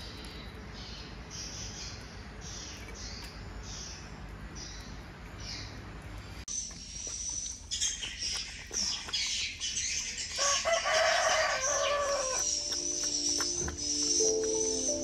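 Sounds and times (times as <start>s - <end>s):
chickens clucking: 6.5s - 15.0s
rooster crowing: 10.4s - 12.5s.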